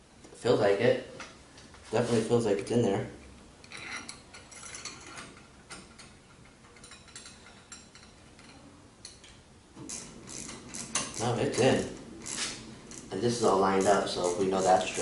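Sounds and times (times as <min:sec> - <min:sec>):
metal parts clicking and scraping: 0:03.6 - 0:15.0.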